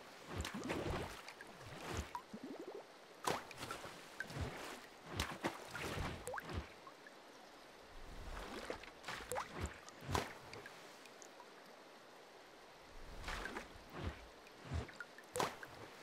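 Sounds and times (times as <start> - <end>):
watery plops: 13.2 - 15.9.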